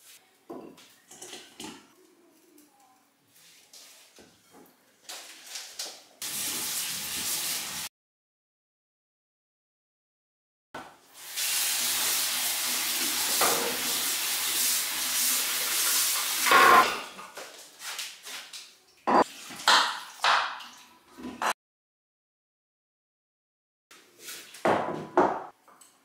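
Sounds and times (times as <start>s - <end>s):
tap running into sink: 13.3s - 14.0s.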